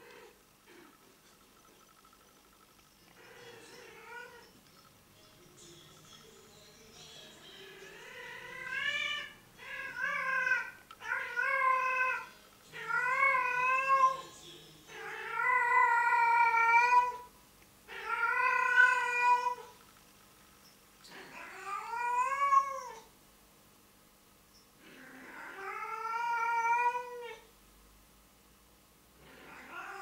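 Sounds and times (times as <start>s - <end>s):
cat yowling: 3.2s - 4.5s, 7.8s - 14.2s, 14.9s - 17.3s, 17.9s - 19.7s, 21.2s - 23.1s, 25.0s - 27.5s, 29.3s - 30.0s.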